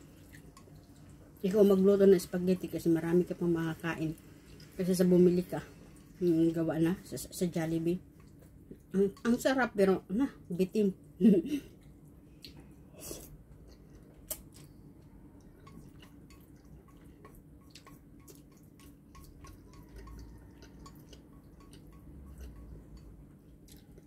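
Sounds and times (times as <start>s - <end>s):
spaghetti being chewed: 0.0s - 1.4s, 11.8s - 24.0s.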